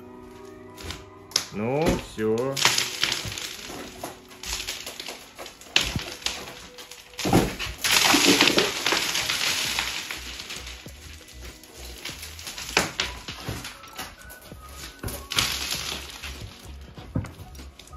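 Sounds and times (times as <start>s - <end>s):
ceiling boards cracking: 0.8s - 17.9s
tearing and scraping: 0.8s - 17.9s.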